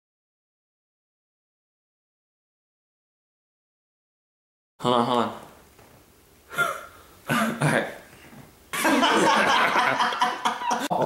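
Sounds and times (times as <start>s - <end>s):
boys laughing: 8.8s - 11.0s.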